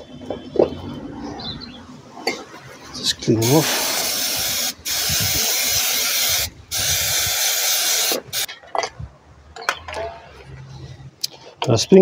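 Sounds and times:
aerosol spray hissing: 3.6 - 8.5.

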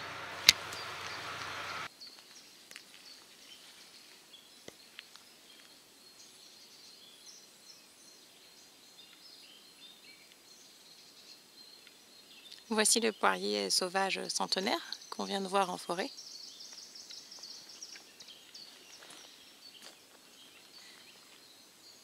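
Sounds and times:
steady hiss: 0.0 - 12.8
distant birdsong chirps: 0.0 - 22.0.

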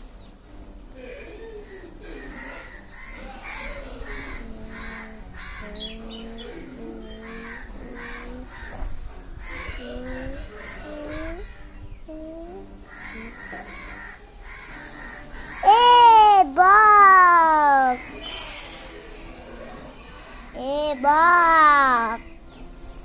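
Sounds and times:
crows cawing: 1.7 - 6.0, 7.2 - 11.6, 12.9 - 16.0.

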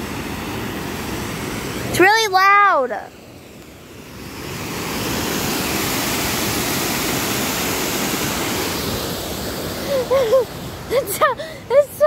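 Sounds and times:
water rushing over spillway: 0.0 - 12.0.

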